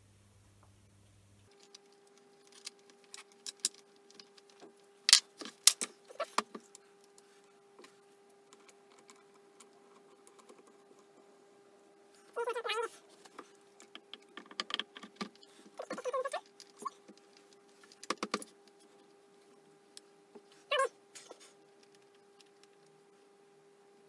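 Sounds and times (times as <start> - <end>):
faint steady hum: 0.0 - 24.0
small steel parts clinking: 1.5 - 6.8.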